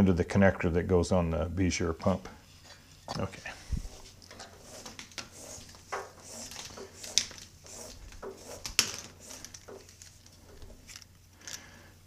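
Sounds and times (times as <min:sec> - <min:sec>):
cable rustling: 0:02.6 - 0:11.7.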